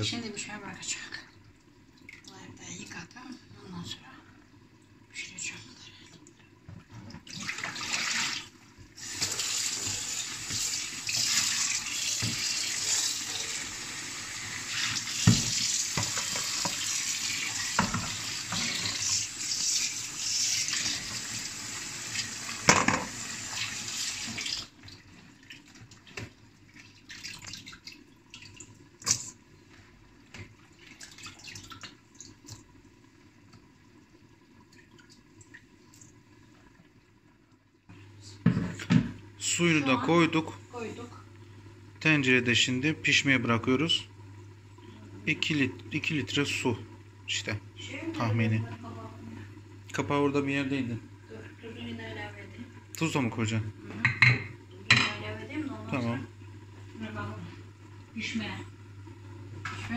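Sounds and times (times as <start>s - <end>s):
tap water running into sink: 6.1s - 37.6s, 38.4s - 59.9s
colander knocking: 22.7s - 23.1s.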